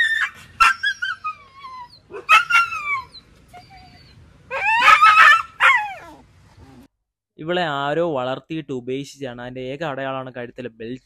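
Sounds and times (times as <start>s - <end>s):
dog yelping and whimpering: 0.0s - 6.9s.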